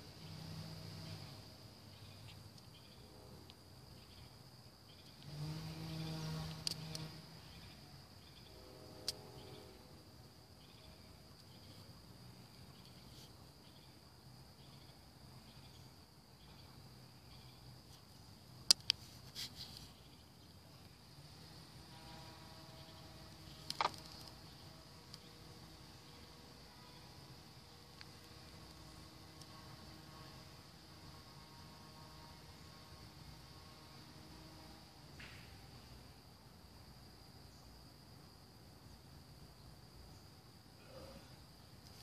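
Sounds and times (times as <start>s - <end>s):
insects trilling: 0.0s - 42.0s
sharp clicks: 23.6s - 24.4s.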